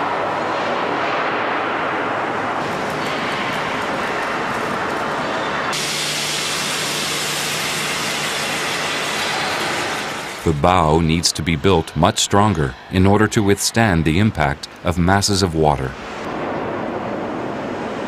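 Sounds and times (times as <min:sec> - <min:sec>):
torch cutting steel plate: 0:05.7 - 0:10.5.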